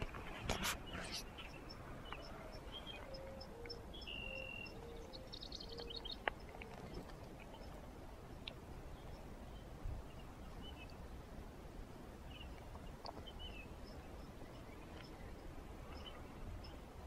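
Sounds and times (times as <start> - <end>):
high bird chirps: 0.9 - 6.6.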